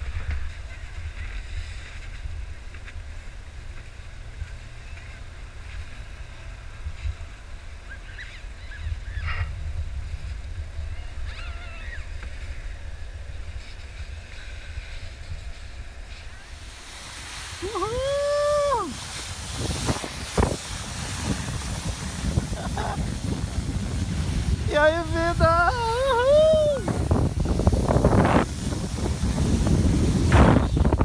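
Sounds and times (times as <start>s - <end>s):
wind buffeting microphone: 0.0s - 31.0s
distant voices calling out: 16.2s - 27.4s.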